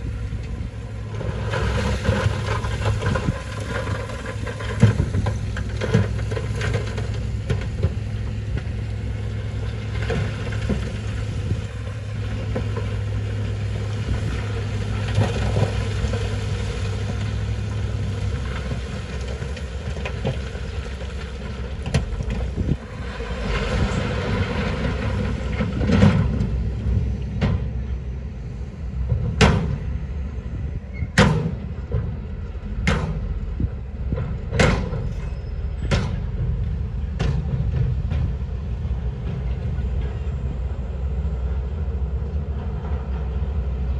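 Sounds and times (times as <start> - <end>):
diesel engine running: 0.0 - 43.9
stones sliding out rumbling: 1.1 - 8.7, 9.6 - 27.8.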